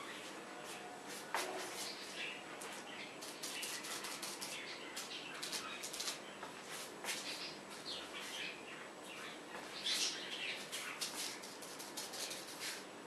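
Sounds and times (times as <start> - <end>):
paintbrush scratching on canvas: 1.1 - 2.3, 3.2 - 4.6, 11.0 - 12.8.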